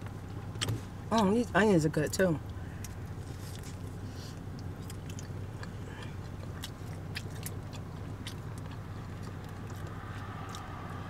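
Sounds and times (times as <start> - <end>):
biting and chewing pizza: 2.8 - 11.0.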